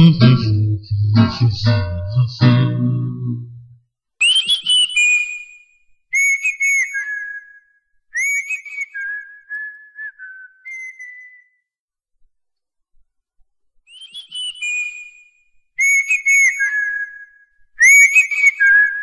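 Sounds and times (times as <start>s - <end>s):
high whistled melody: 4.2s - 11.6s, 15.8s - 19.0s.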